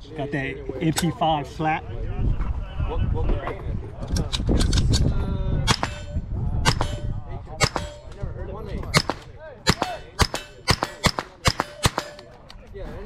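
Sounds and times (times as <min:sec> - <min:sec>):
suppressed gunshots: 0:05.7 - 0:08.2, 0:08.9 - 0:12.4.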